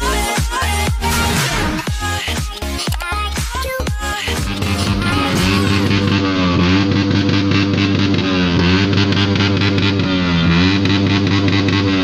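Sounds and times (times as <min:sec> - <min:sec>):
low bass: 0:00.0 - 0:12.0
distorted electric guitar: 0:04.3 - 0:12.0.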